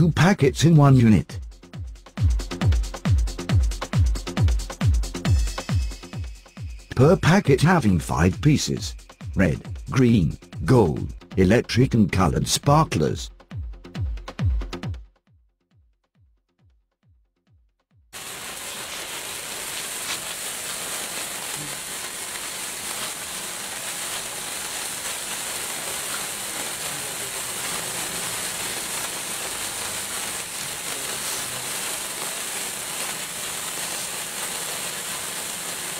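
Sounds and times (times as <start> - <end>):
sparklers crackling: 2.1 - 11.0, 18.1 - 35.9
sparklers fizzing hiss: 2.1 - 11.0, 18.2 - 35.9.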